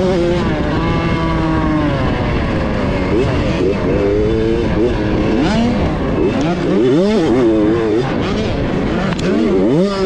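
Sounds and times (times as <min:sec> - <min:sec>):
motocross bike engine revving: 0:00.0 - 0:10.0.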